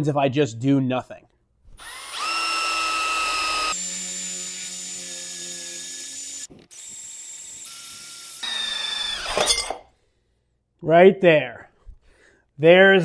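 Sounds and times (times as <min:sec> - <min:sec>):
electric drill boring into steel: 0:01.8 - 0:09.6.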